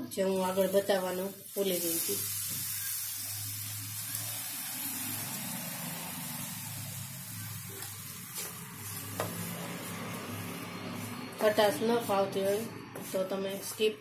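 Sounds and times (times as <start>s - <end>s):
spoon stirring in frying pan: 7.2s - 13.9s.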